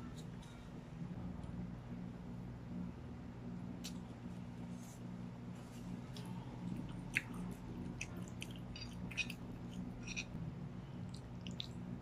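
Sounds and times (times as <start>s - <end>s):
steady low hum: 0.0s - 12.0s
chewing spaghetti: 6.1s - 10.4s, 11.1s - 11.8s.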